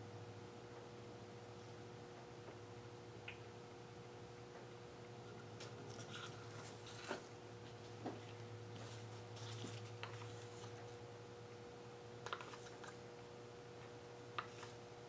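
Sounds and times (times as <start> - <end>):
plastic cups clicking and scraping: 5.9 - 7.3, 9.4 - 10.8, 12.2 - 13.0.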